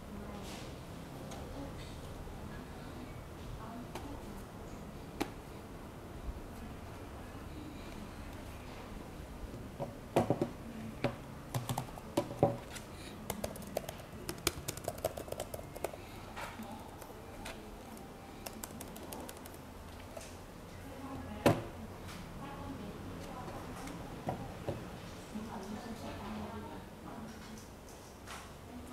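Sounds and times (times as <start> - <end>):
laptop knocking on wooden table: 9.8 - 10.6
laptop keyboard clicking: 11.5 - 16.0, 16.8 - 19.6.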